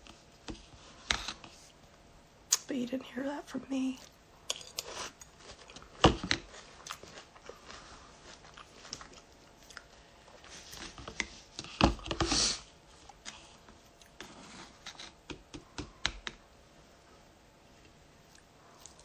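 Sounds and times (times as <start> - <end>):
crunchy chewing: 4.5 - 11.0.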